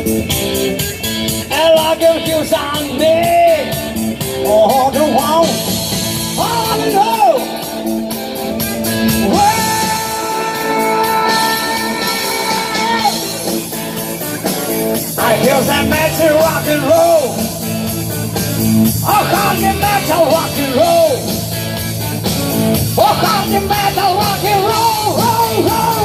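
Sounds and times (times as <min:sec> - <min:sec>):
rock and roll drums: 0:00.0 - 0:26.0
person singing: 0:08.8 - 0:13.7, 0:14.6 - 0:18.0, 0:18.9 - 0:21.5, 0:22.9 - 0:26.0.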